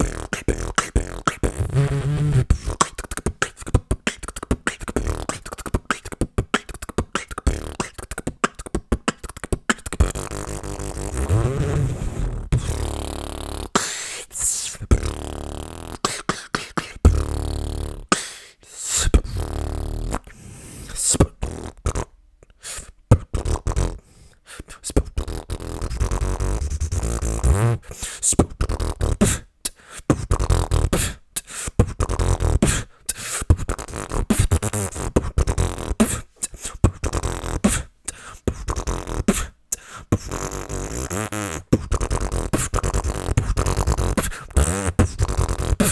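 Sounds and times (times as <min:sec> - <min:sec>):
beatboxing into microphone: 0:00.0 - 0:45.9.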